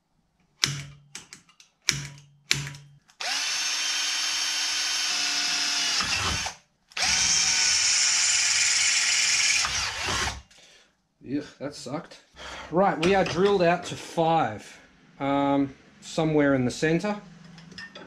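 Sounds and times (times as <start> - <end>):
drill trigger clicks: 2.0 - 7.8
cordless drill boring metal: 3.1 - 10.5.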